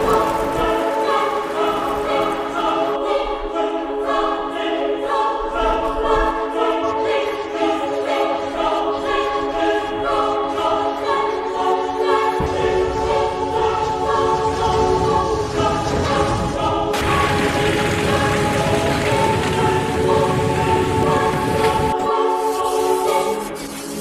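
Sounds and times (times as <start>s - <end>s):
choir singing sustained chords: 0.0s - 24.0s
low rushing rumble: 12.4s - 21.9s.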